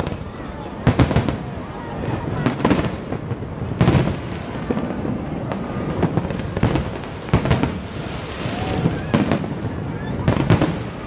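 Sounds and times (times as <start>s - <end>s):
fireworks bursting with bangs: 0.0s - 11.0s.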